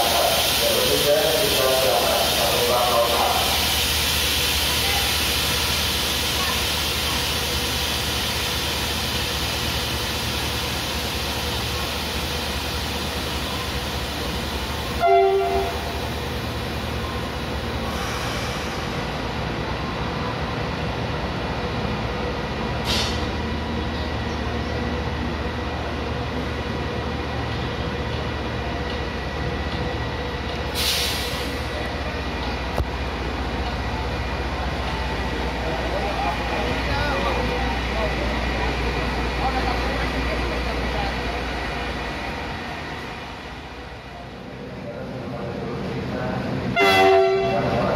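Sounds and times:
diesel locomotive idling: 0.0s - 47.9s
locomotive horn blast: 15.0s - 16.0s, 46.7s - 47.8s
air hiss bursts: 30.8s - 31.7s.

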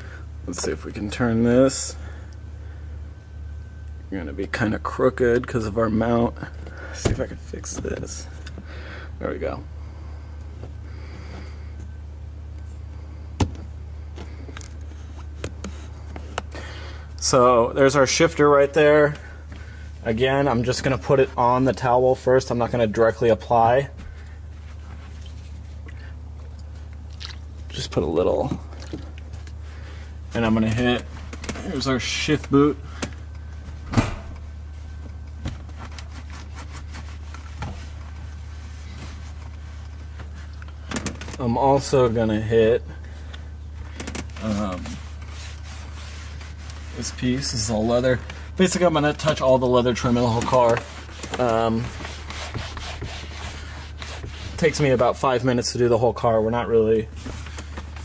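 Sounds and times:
steady low hum: 0.0s - 58.0s
towel rubbing leather: 35.6s - 39.8s, 44.4s - 48.1s, 49.9s - 54.9s.

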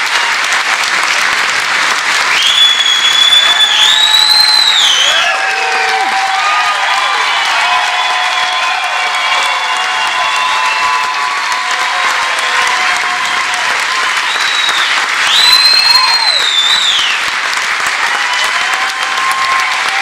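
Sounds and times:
audience applauding: 0.0s - 20.0s
long high whistle: 2.3s - 5.3s, 14.1s - 17.2s.

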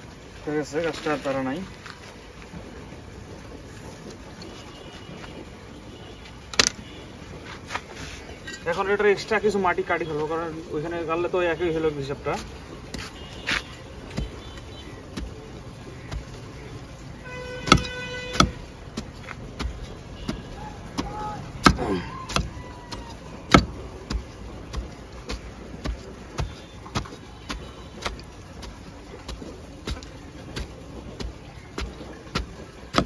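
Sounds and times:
trowel striking and scraping soil: 12.3s - 16.7s, 17.6s - 33.0s.

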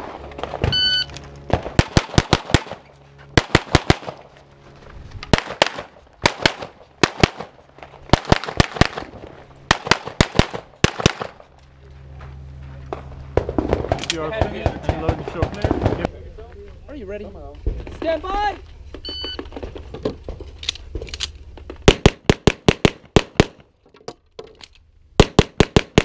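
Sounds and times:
shot timer beep: 0.7s - 1.1s
rapid pistol fire: 1.5s - 2.8s, 3.4s - 4.2s, 5.3s - 9.1s, 9.7s - 11.4s, 21.9s - 23.7s, 25.2s - 26.0s.

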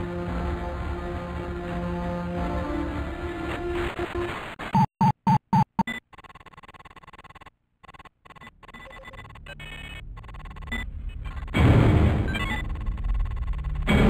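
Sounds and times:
electronic hum with steady tones: 5.0s - 11.6s
short loud electronic beeps: 12.2s - 13.7s.

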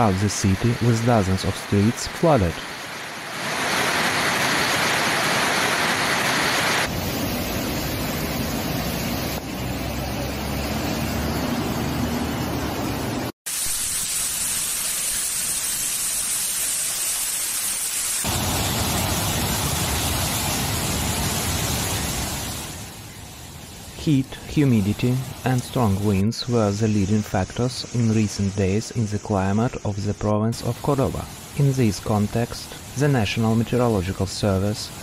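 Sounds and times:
floodwater rushing: 0.0s - 13.3s, 18.2s - 23.1s, 23.7s - 26.2s.

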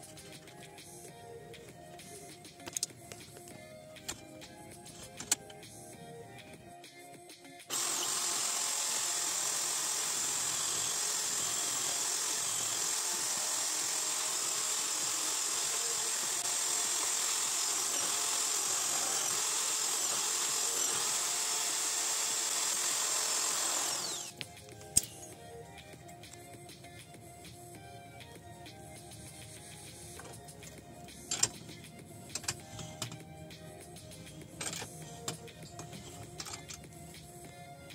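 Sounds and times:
electric drill running: 7.7s - 24.4s, 32.4s - 33.2s.

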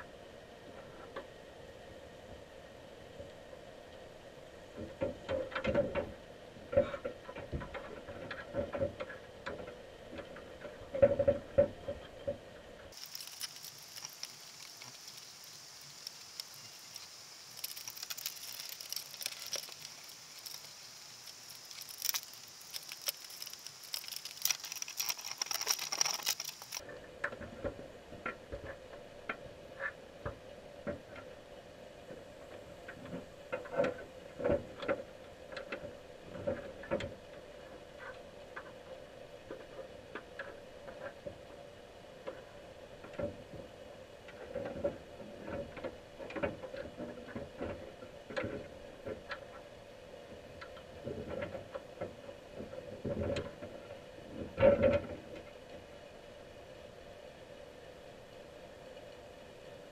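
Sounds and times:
low underwater hum: 0.0s - 59.9s
underwater clicks and crackles: 4.8s - 31.3s, 42.2s - 49.7s
high hiss: 13.0s - 26.8s.

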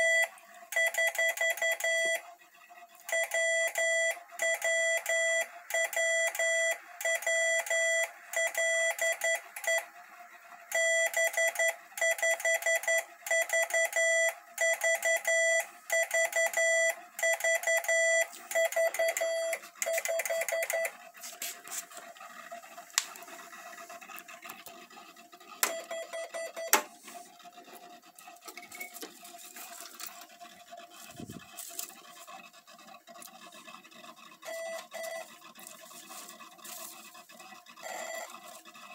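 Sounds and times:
morse code tone: 0.0s - 2.2s, 3.1s - 9.9s, 10.7s - 21.0s, 25.6s - 26.8s, 34.4s - 35.3s, 37.8s - 38.6s.

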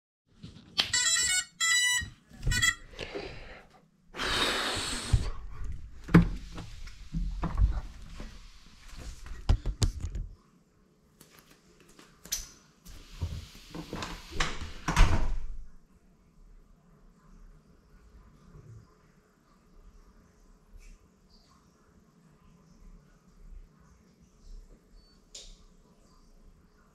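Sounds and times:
short electronic beeps: 0.8s - 2.8s.

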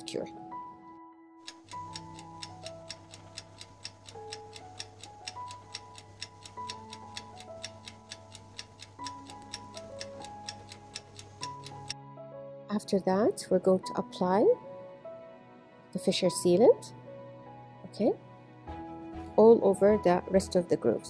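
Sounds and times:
soft background music: 0.0s - 21.0s
stopwatch ticking: 1.4s - 12.0s.

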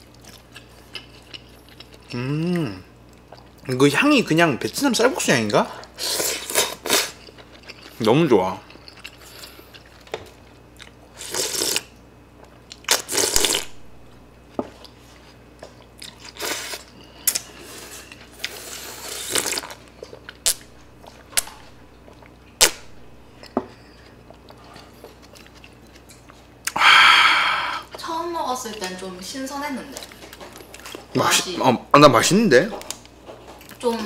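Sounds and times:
chewing: 0.0s - 3.7s, 5.4s - 8.0s, 8.6s - 11.8s, 14.8s - 22.4s, 23.4s - 26.8s, 30.0s - 31.2s, 32.7s - 34.0s
slurping noodles: 11.2s - 11.9s.

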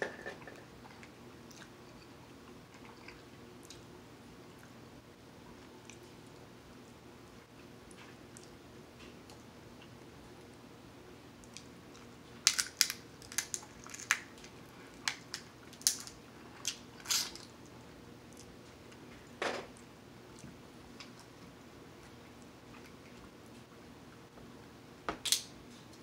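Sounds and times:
crab shells cracking: 12.4s - 17.5s.

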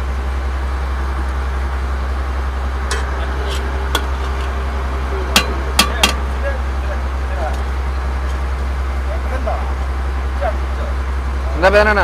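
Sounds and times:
boat engine humming: 0.0s - 12.0s
steel ladle clinking on pots: 5.4s - 6.3s.

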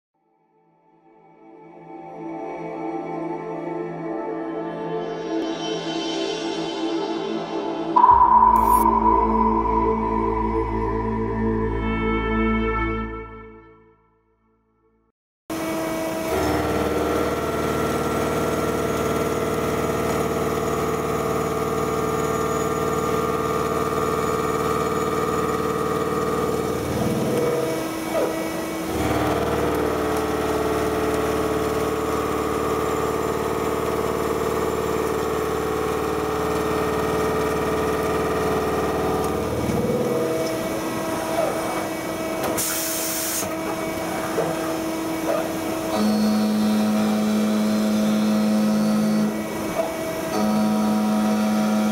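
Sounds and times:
milling machine cutting tone: 16.2s - 42.6s, 43.5s - 51.9s.

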